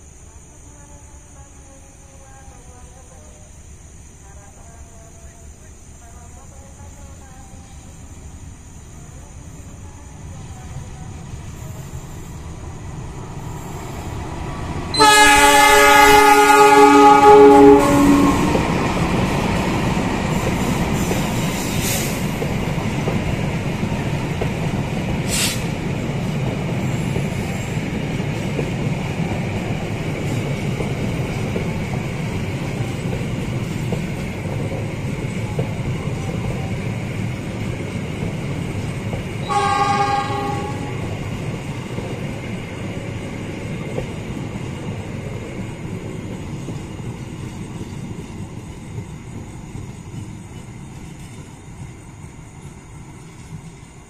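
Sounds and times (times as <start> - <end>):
train wheels rumbling on rails: 5.9 - 54.0
train horn: 14.9 - 18.7, 39.4 - 41.1.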